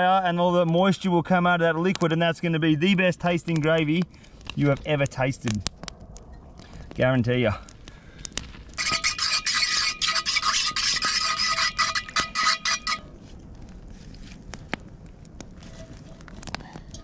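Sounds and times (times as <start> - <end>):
metal spoon scraping a pot: 8.8 - 13.1.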